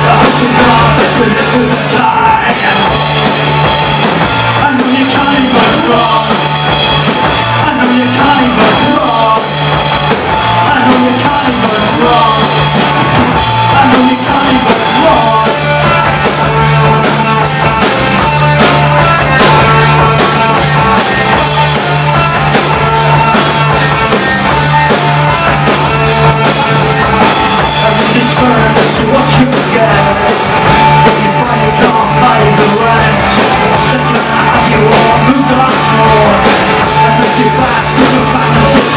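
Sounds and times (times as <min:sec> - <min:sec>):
man singing: 0:00.0 - 0:03.4, 0:04.5 - 0:17.6, 0:25.9 - 0:38.9
live rock band playing: 0:00.0 - 0:38.9.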